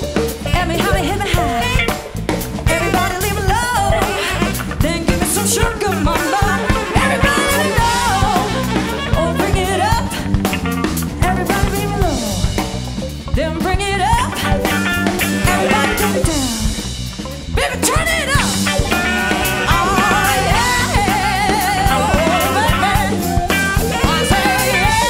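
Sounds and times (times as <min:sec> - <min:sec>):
saxophone: 0:00.0 - 0:12.4, 0:14.1 - 0:17.0, 0:18.0 - 0:25.0
drum kit: 0:00.0 - 0:25.0
electric bass: 0:00.0 - 0:25.0
person singing: 0:00.5 - 0:02.1, 0:02.7 - 0:10.2, 0:15.2 - 0:16.8, 0:17.6 - 0:25.0.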